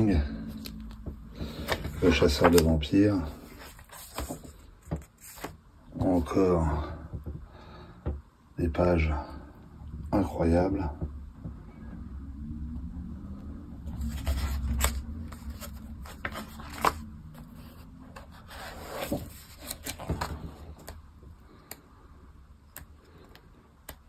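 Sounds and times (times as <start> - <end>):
pages flipping and rustling: 0.5 - 6.2, 13.9 - 21.0.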